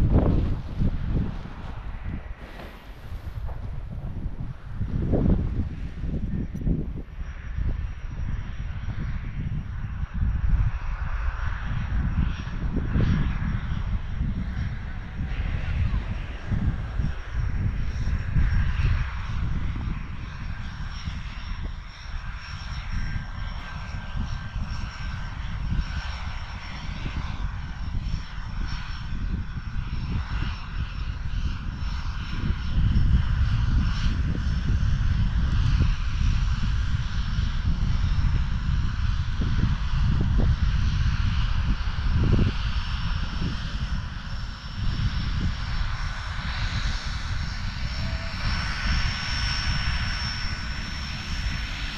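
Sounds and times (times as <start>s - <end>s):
wind buffeting microphone: 0.0s - 51.9s.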